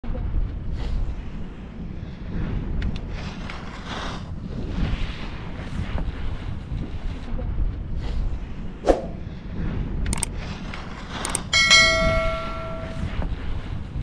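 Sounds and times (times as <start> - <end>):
quick clicks: 10.1 - 10.3, 11.1 - 11.5
bright bell-like ding: 11.6 - 13.3.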